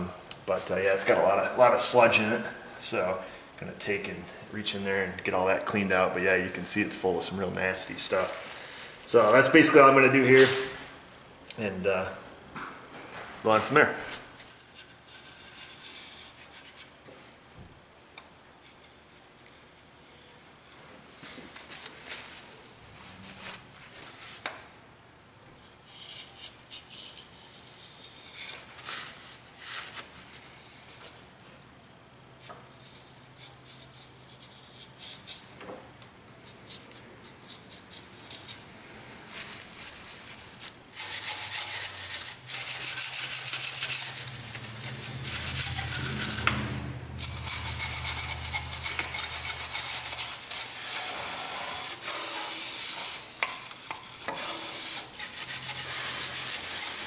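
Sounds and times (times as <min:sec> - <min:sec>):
scraper scraping metal: 0:39.3 - 0:57.0.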